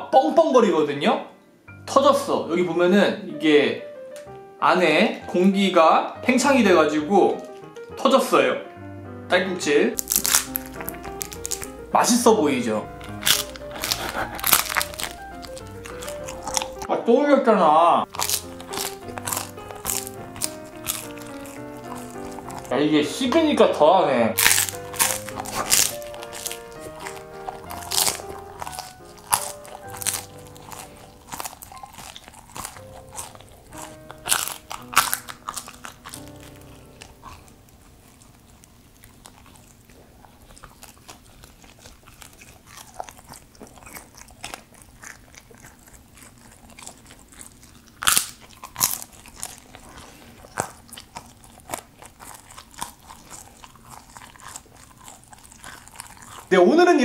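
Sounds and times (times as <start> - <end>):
background music: 0.0 - 57.0
chewing crunchy noodles: 7.3 - 8.0, 10.0 - 12.1, 12.8 - 16.9, 18.0 - 23.4, 24.3 - 56.6.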